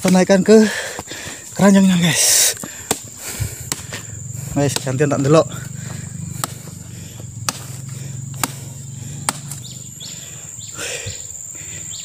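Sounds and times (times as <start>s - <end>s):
high-pitched insect drone: 0.1s - 12.0s
bird chirping: 3.2s - 12.0s
sharp knocks: 6.4s - 6.7s, 7.4s - 8.7s.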